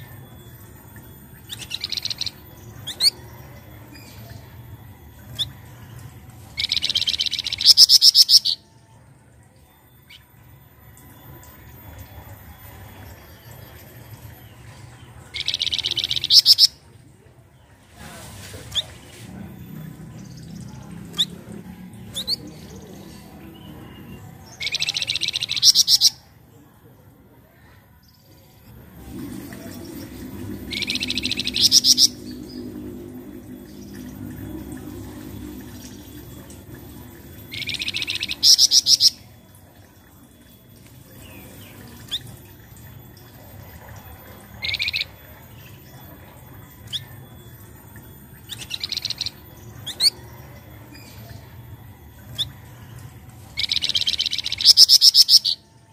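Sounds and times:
bird rising chirps: 0:29.0 - 0:39.3.

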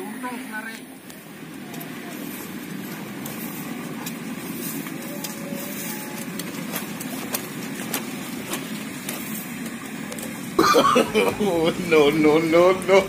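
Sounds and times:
kite sail rustling and snapping: 0:03.2 - 0:10.4.

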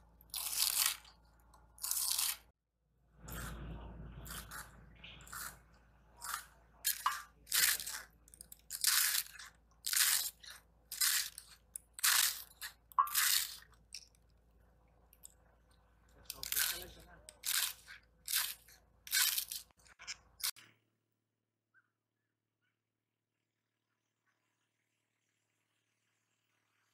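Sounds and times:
cabbage shredding crunch: 0:00.2 - 0:01.2, 0:01.8 - 0:02.5, 0:04.2 - 0:13.8, 0:16.3 - 0:19.8.

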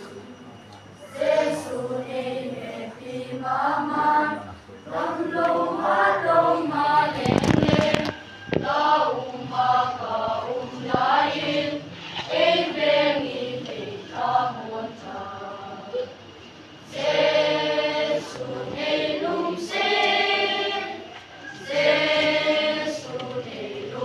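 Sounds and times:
children's choir singing: 0:00.0 - 0:00.4, 0:01.0 - 0:24.0.

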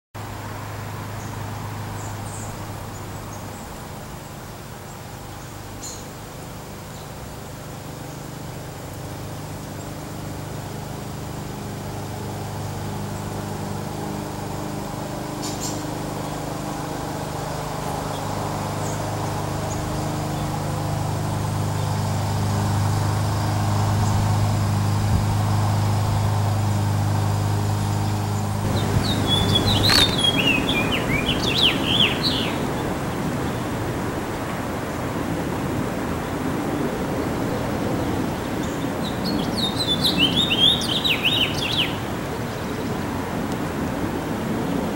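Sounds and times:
low motor hum: 0:18.8 - 0:34.2
finch chirping warble: 0:28.6 - 0:32.8.

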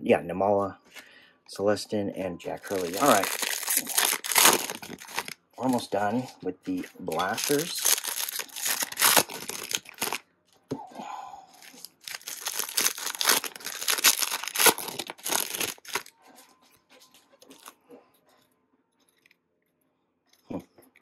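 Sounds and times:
foil wrapper tearing and crinkling: 0:02.7 - 0:05.4, 0:06.8 - 0:10.2, 0:11.6 - 0:16.1.

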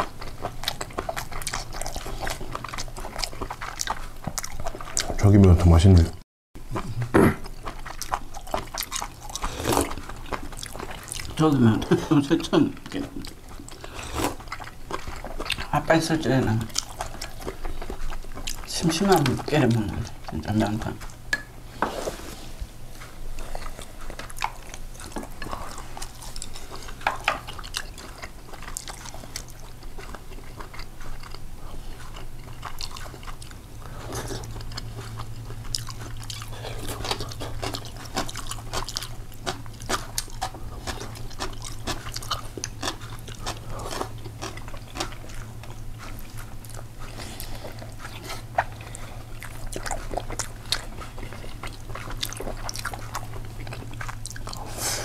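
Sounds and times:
low steady hum: 0:00.0 - 0:55.0
person chewing and crunching food: 0:00.0 - 0:55.0.

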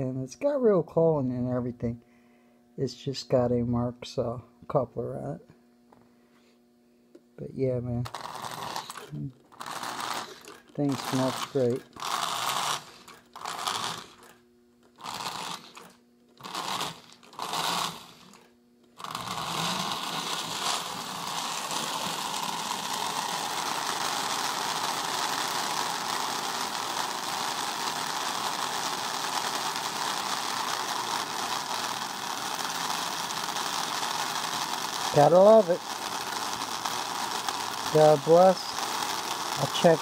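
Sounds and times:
toy train motor whirring: 0:08.0 - 0:40.0.

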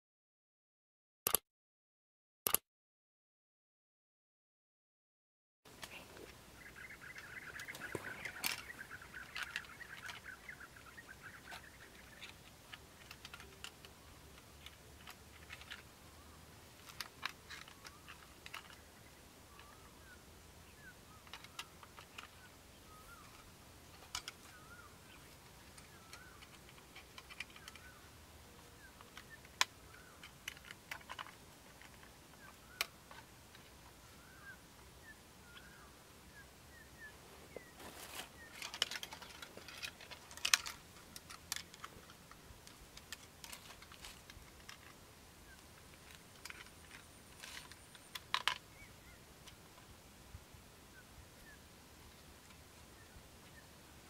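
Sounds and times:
rustling in grass: 0:37.1 - 0:44.9.

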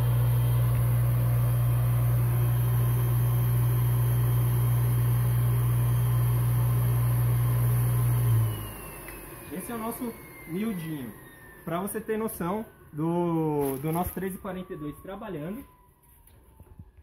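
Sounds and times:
blower humming with airy hiss: 0:00.0 - 0:13.6.

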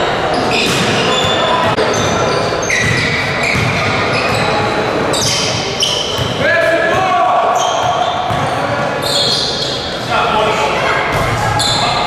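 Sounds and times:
echoing gym din: 0:00.0 - 0:12.0
sneakers squeaking on hardwood: 0:00.3 - 0:06.4, 0:07.5 - 0:09.9
basketball bouncing: 0:02.8 - 0:04.0, 0:07.8 - 0:08.5.

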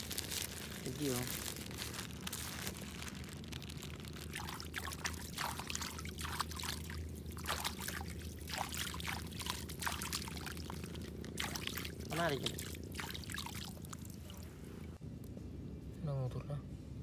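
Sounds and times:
water trickling: 0:00.0 - 0:15.0
small water splashes: 0:03.0 - 0:15.0.

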